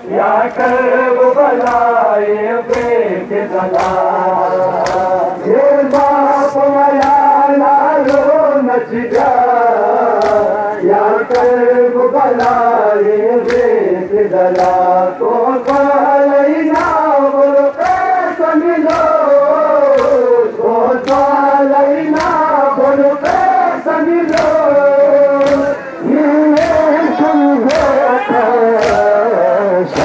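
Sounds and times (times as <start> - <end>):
man chanting: 0.0 - 30.0
hands beating on chest: 5.8 - 6.2, 8.0 - 8.4, 9.1 - 9.4, 10.2 - 10.6, 12.3 - 12.7, 16.7 - 17.1, 18.8 - 20.3, 21.0 - 21.5, 22.1 - 23.6, 24.2 - 24.7, 25.4 - 25.8, 26.5 - 28.0, 28.7 - 29.2.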